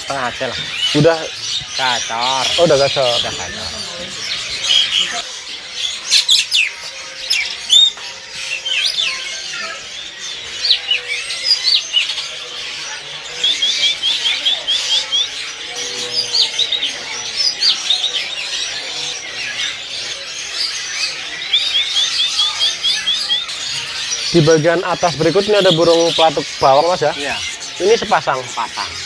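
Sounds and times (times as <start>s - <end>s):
bird trilling: 0.0s - 29.0s
caged songbirds chirping: 0.0s - 29.0s.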